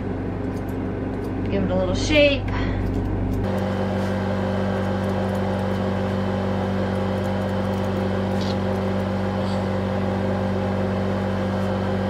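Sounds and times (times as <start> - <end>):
steady motor hum: 0.0 - 12.0
grooming shears snipping: 7.0 - 9.8.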